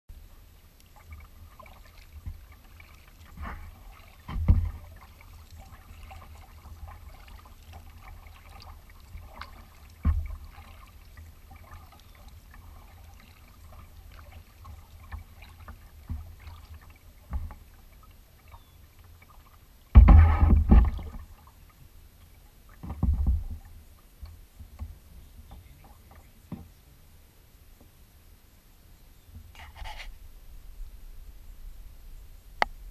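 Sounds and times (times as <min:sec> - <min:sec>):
water lapping and dripping: 0:00.6 - 0:26.7
kayak paddle strokes: 0:00.6 - 0:26.8, 0:29.4 - 0:30.3
knocks and splashes: 0:01.0 - 0:21.6, 0:22.7 - 0:23.8
steady low rumble: 0:30.2 - 0:32.9.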